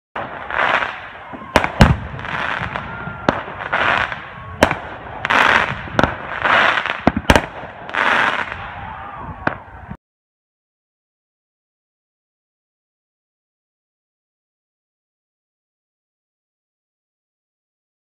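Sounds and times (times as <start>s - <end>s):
fireworks crackling: 0.2s - 9.9s
fireworks bangs: 0.2s - 10.0s.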